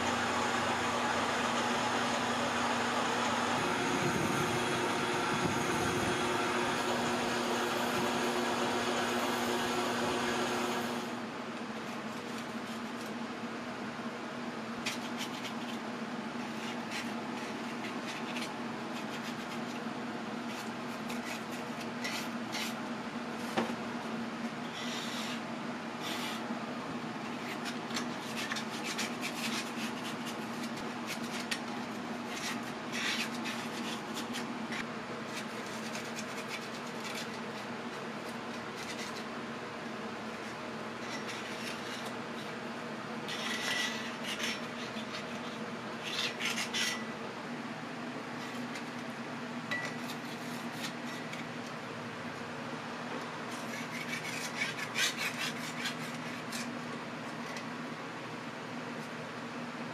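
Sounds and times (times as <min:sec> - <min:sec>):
lathe humming: 0:00.0 - 0:11.3.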